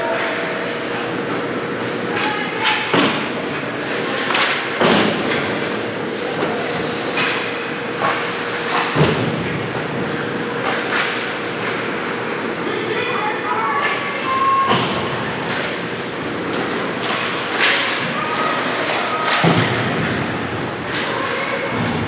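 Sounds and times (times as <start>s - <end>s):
steady hum: 0.0s - 22.0s
hockey sticks and puck knocking: 15.4s - 22.0s.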